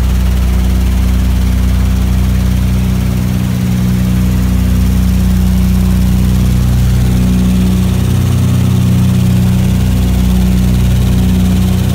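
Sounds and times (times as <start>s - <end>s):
aircraft engines droning in flight: 0.0s - 11.9s.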